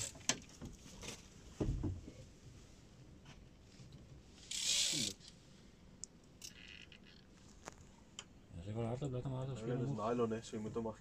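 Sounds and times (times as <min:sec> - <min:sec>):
fishing reel drag buzzing: 0:04.4 - 0:05.2.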